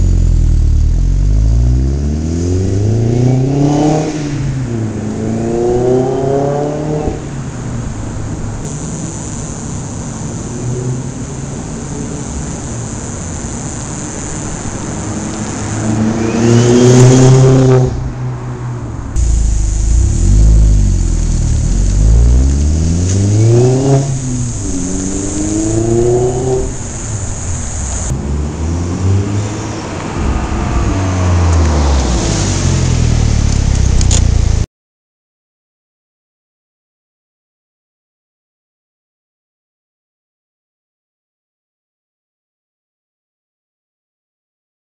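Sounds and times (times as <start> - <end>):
car engine accelerating hard: 0.0 - 7.3, 14.8 - 34.6.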